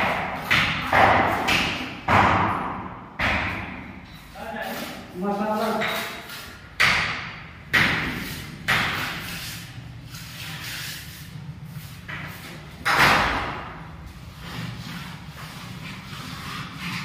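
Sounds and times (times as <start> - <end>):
trowel scraping cement floor: 8.1 - 12.7, 14.3 - 17.0.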